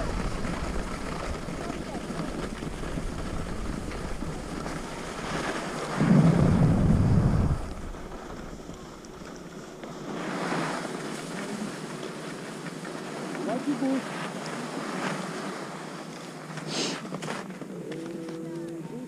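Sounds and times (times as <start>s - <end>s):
wind buffeting microphone: 0.0s - 10.1s
skis sliding over snow: 0.0s - 18.6s.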